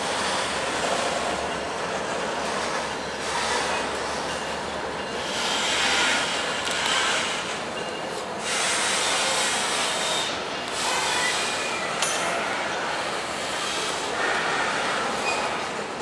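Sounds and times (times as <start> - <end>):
freight train cars rolling on rails: 0.0 - 16.0
faint wheel squeal: 10.0 - 12.0, 14.6 - 15.7.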